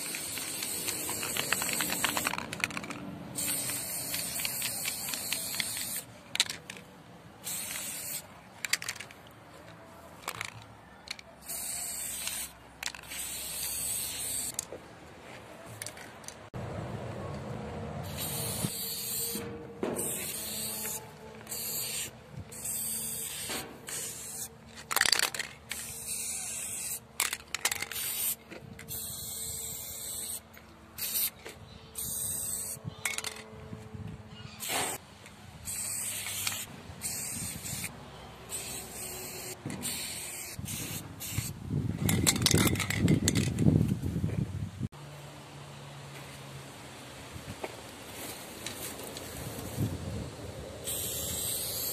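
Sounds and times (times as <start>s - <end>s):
spray paint can hissing: 0.0s - 6.8s, 7.4s - 9.1s, 10.3s - 14.6s, 18.0s - 33.4s, 34.6s - 35.0s, 35.6s - 37.9s, 38.5s - 43.5s, 50.8s - 51.9s.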